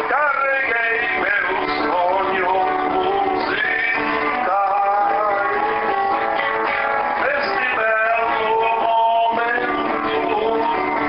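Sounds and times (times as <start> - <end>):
acoustic guitar music: 0.0 - 11.0
sliding melody line: 0.0 - 11.0.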